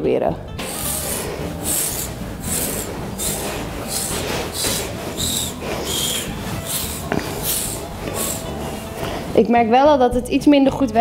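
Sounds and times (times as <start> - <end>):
metal scraper rasping through hair: 0.6 - 9.4.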